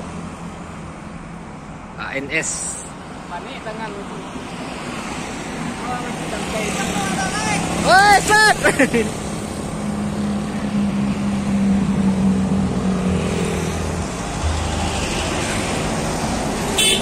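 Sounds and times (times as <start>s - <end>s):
traffic and road noise: 0.0s - 17.0s
vehicle engine passing: 11.4s - 16.8s.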